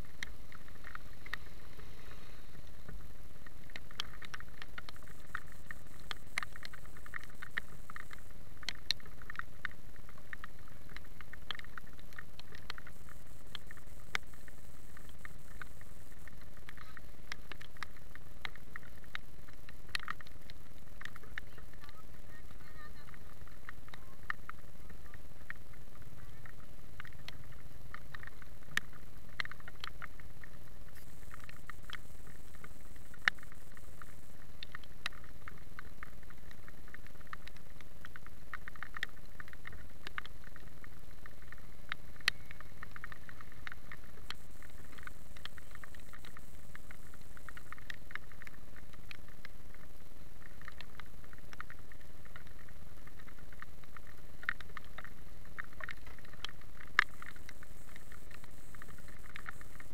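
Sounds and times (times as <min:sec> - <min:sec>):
raindrops ticking: 0:00.0 - 0:59.9
steady low hiss: 0:00.0 - 0:59.9.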